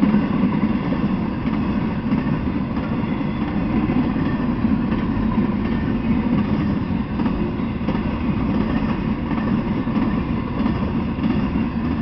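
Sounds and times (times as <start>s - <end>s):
freight train wheels rumbling on rails: 0.0s - 12.0s.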